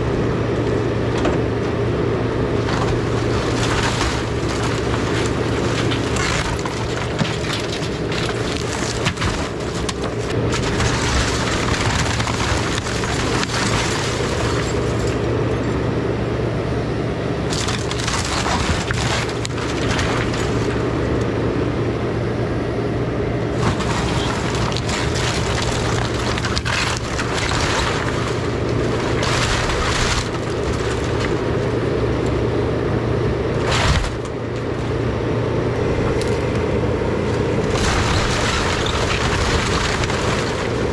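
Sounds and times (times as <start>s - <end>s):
excavator engine running: 0.0s - 40.9s
wood cracking and splintering: 2.5s - 15.6s, 17.4s - 21.3s, 23.5s - 32.4s, 33.4s - 35.0s, 35.7s - 40.9s
debris crunching and falling: 2.5s - 15.8s, 17.4s - 21.2s, 23.5s - 32.5s, 33.4s - 35.1s, 35.8s - 40.9s.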